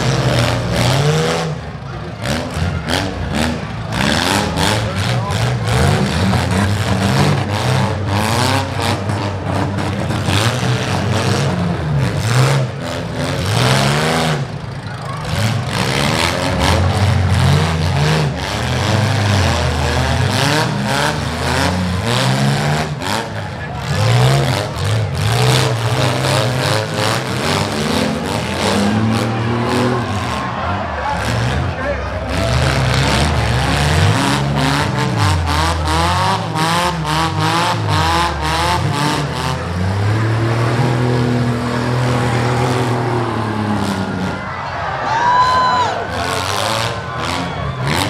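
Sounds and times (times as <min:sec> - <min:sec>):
car engines revving: 0:00.0 - 0:48.0.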